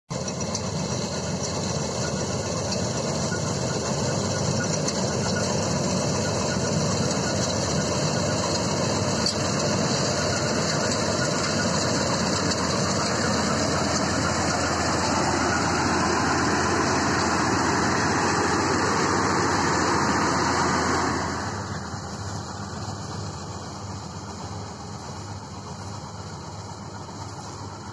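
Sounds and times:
combine harvester engine drone: 0.1 - 27.9.

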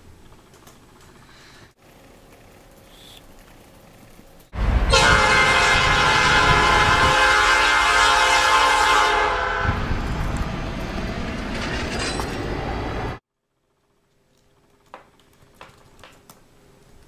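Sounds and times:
passing train rumble: 4.5 - 13.2
locomotive air horn: 4.6 - 10.0.

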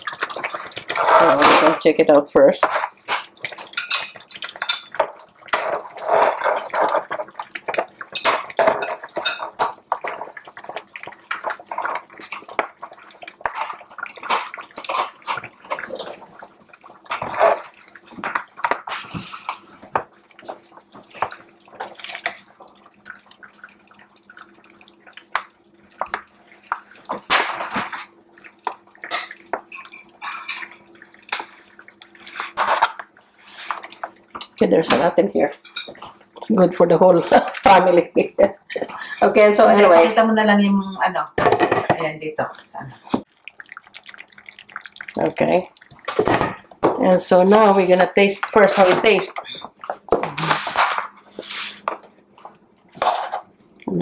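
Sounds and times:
sauce dripping and splashing: 2.8 - 34.6, 43.2 - 46.9.

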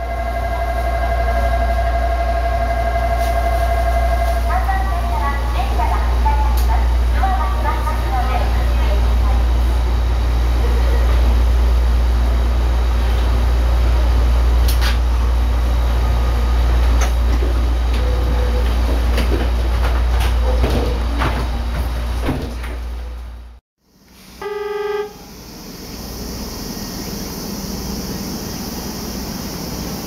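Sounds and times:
low hum of stopped train: 0.0 - 30.0
train doors sliding shut: 14.6 - 15.2, 16.7 - 23.3
short train horn toot: 24.4 - 25.2.

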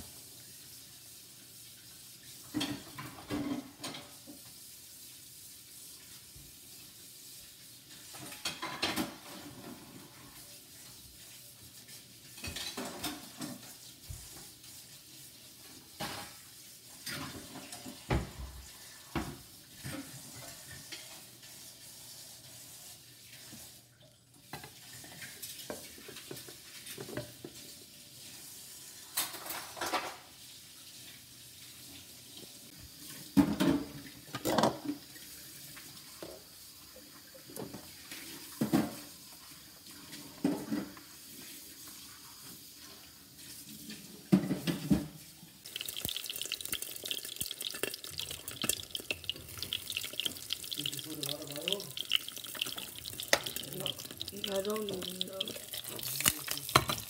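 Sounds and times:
pan and dishes clinking: 8.1 - 10.0, 12.3 - 13.7, 45.8 - 57.0.

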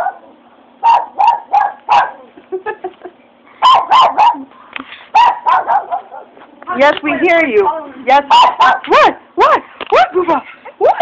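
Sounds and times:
dog barking: 0.0 - 2.2, 3.6 - 4.5, 5.1 - 6.4, 8.2 - 9.2
dog yelping: 0.8 - 2.2, 3.6 - 4.5, 5.1 - 6.4, 8.2 - 10.2.

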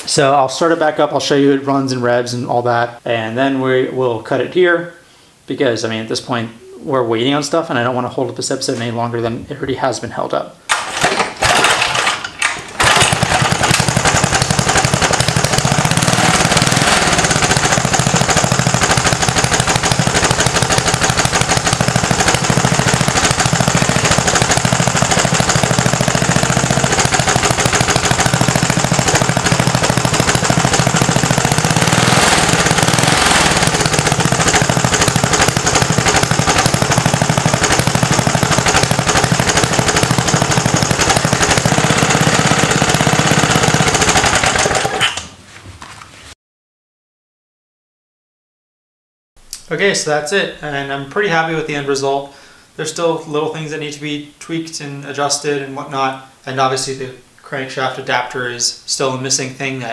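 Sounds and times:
small engine starting and running: 10.7 - 45.3.

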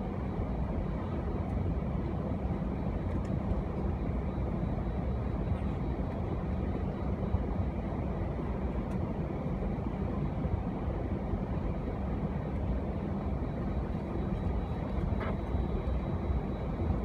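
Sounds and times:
aircraft cabin low rumble: 0.0 - 17.0.

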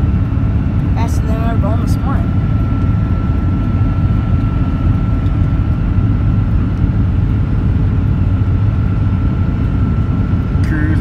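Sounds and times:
low engine drone: 0.0 - 11.0
thin constant whine: 0.0 - 11.0.

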